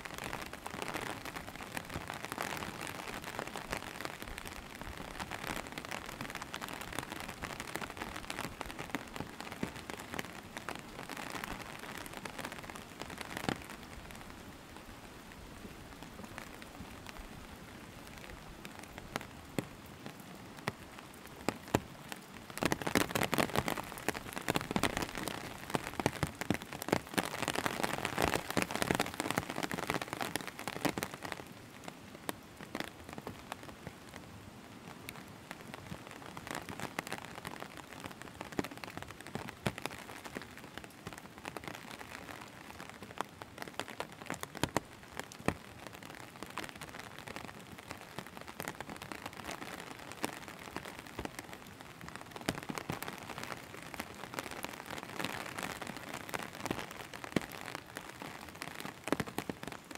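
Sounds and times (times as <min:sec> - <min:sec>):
raindrops ticking: 0:00.0 - 0:34.2, 0:34.8 - 0:59.9
steady rain on road and foliage: 0:00.0 - 0:59.9.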